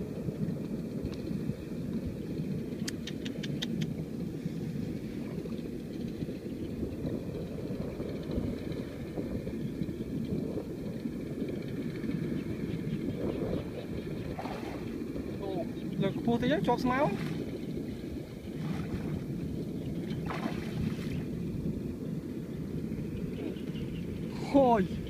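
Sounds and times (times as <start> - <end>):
wind buffeting microphone: 0.0 - 25.0
sharp clicks: 2.8 - 3.9.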